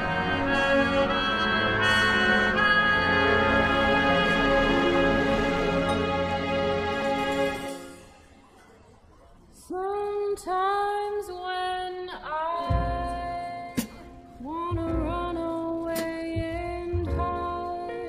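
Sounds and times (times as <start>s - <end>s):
female singing over bass beat: 9.7s - 18.0s.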